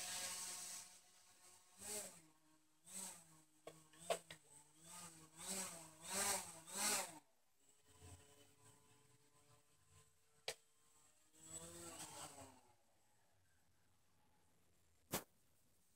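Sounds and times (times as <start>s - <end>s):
drone motors whirring: 0.0s - 10.1s, 11.3s - 12.6s.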